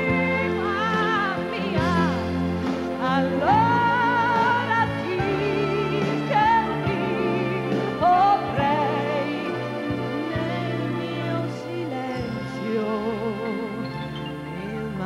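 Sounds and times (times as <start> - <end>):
piano: 0.0 - 15.0
strings: 0.0 - 15.0
woman singing ballad: 0.0 - 15.0.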